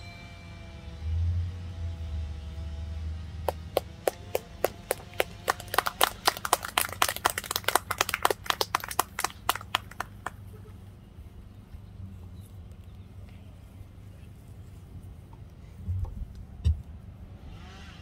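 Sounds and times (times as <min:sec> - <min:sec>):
crowd clapping: 0:03.4 - 0:10.6.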